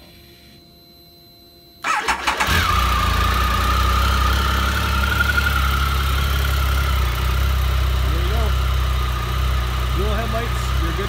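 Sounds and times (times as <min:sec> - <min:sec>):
electric starter cranking: 0:01.8 - 0:03.6
motorcycle engine idling: 0:01.9 - 0:11.0.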